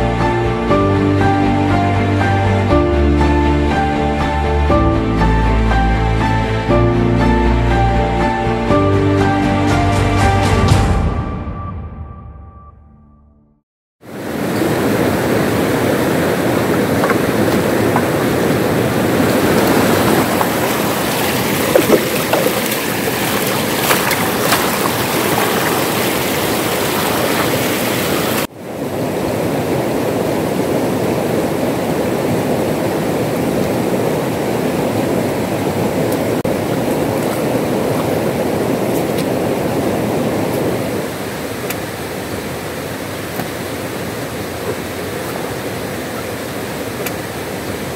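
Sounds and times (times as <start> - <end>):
river rapids rushing over rocks: 14.1 - 47.9.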